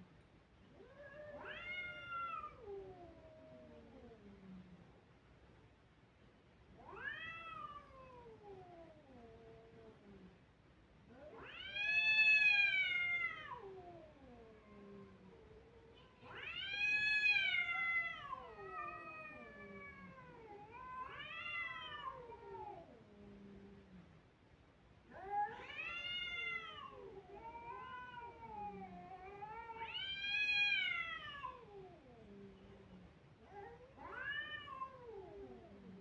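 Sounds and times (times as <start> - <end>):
cats yowling: 0.8 - 3.9, 6.8 - 9.2, 11.1 - 23.0, 25.1 - 32.1, 33.5 - 36.0.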